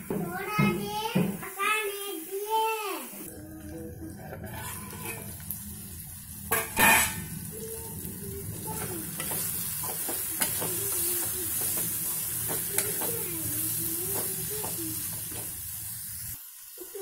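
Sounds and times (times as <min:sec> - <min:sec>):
food sizzling in a pan: 0:00.0 - 0:17.0
spatula scraping a pan: 0:04.2 - 0:05.6, 0:06.5 - 0:07.8, 0:08.5 - 0:15.6.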